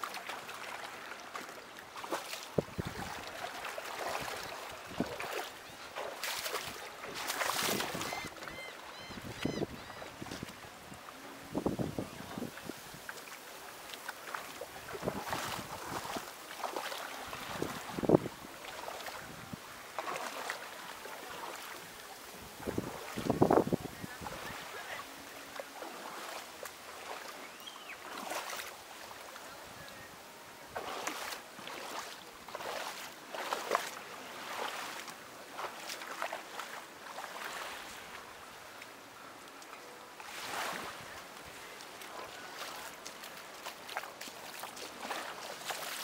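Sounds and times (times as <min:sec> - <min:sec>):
small waves washing onto beach: 0:00.0 - 0:46.0.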